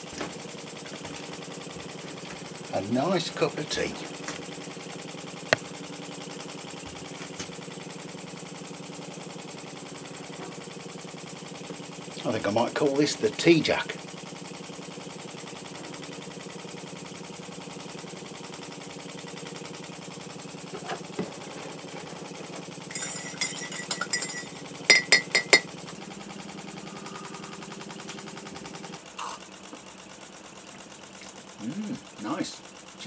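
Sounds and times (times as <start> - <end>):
model steam engine running: 0.4 - 6.8, 7.6 - 33.0
clinking on ceramic mug: 22.9 - 25.7
sharp ringing clinks: 22.9 - 25.7.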